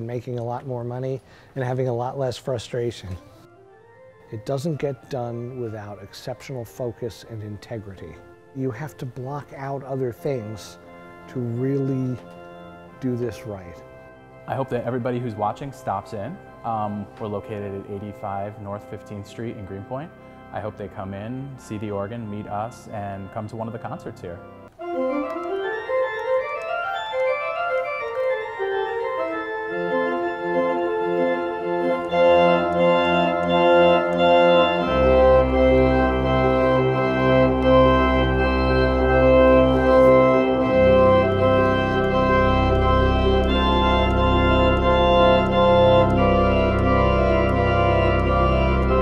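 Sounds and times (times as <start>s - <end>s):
church pipe organ playing: 0.0s - 49.0s
deep pedal bass: 31.8s - 49.0s.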